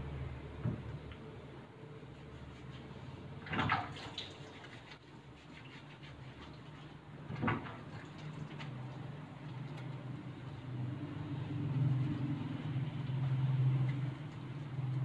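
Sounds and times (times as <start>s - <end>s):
water splashing during bathing: 3.4s - 10.1s.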